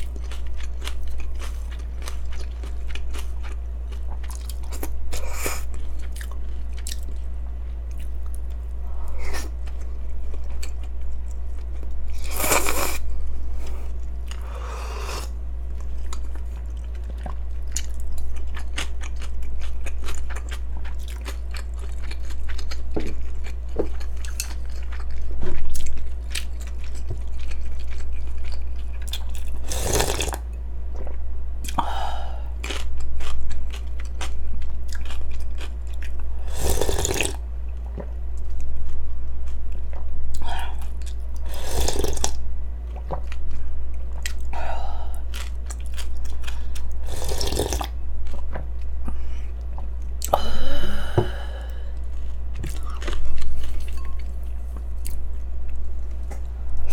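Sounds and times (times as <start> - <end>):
chewing and crunching: 0.0 - 14.6, 15.6 - 31.8, 32.6 - 50.4, 51.8 - 56.9
low hum: 0.0 - 29.7, 30.4 - 36.6, 37.3 - 56.9
slurping broth: 29.6 - 30.4, 36.5 - 37.4, 41.5 - 42.3, 47.0 - 47.9.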